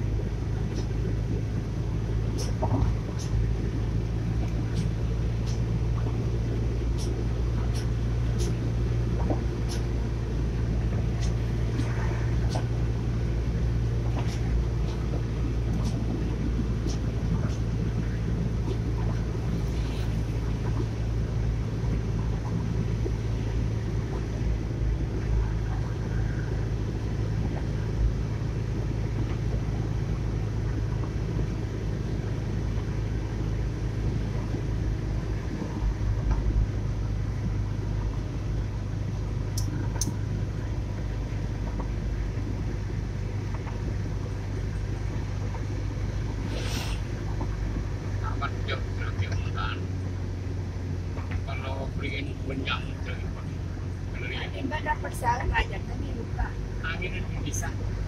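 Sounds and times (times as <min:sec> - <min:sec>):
car interior engine and road noise: 0:00.0 - 0:58.0
short sharp sound: 0:46.4 - 0:47.1.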